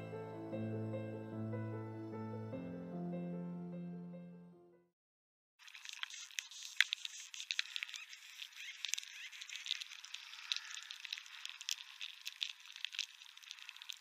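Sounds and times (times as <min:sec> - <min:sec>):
irregular clicking and crackling: 0:05.6 - 0:14.0.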